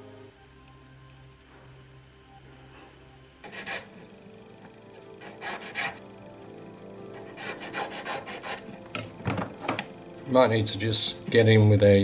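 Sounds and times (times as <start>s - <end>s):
hand file rasping on wire: 5.2s - 6.0s, 7.2s - 8.8s.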